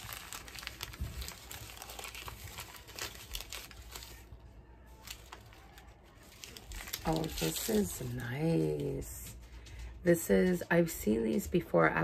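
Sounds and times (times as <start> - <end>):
paper wrapping crinkling: 0.0 - 9.5.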